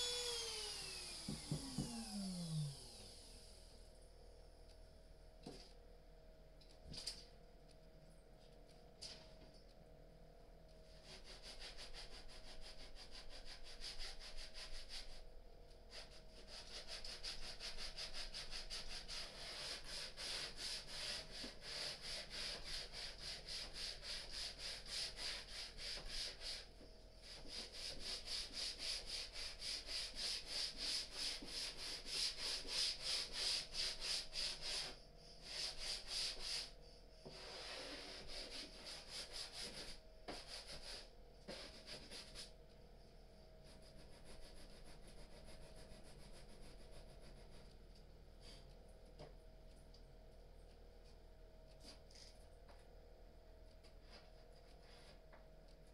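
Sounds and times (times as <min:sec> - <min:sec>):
hand sanding wood: 0:00.0 - 0:02.5, 0:11.0 - 0:15.2, 0:15.9 - 0:42.5, 0:43.7 - 0:47.6.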